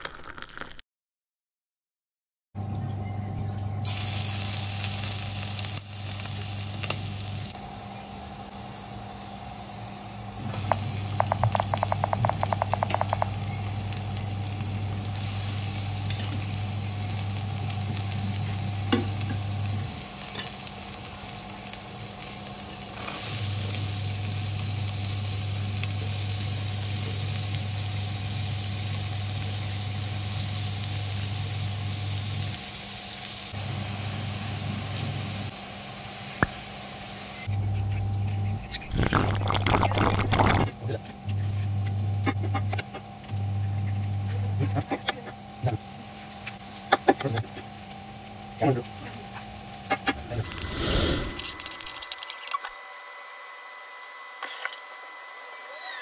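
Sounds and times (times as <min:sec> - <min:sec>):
vegetables sizzling in oil: 0:03.8 - 0:37.5
low hum: 0:50.2 - 0:52.7.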